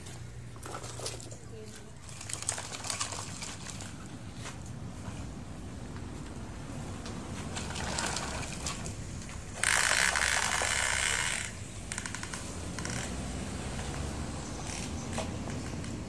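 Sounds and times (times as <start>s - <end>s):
toy truck wheels rattling on dirt: 0.0s - 4.2s, 7.6s - 16.0s.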